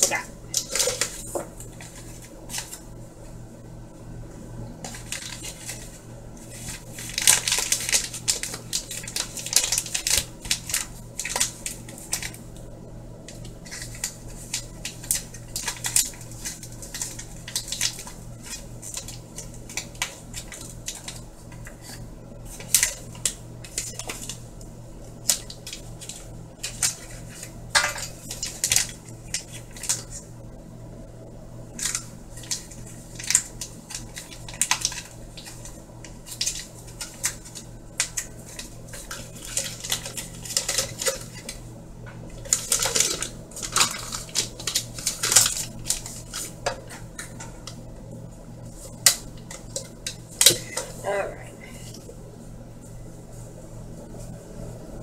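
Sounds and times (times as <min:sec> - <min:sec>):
steady low hum: 0:00.0 - 0:55.0
utensils and dishes clinking: 0:26.6 - 0:30.0, 0:38.0 - 0:41.6, 0:42.4 - 0:47.6.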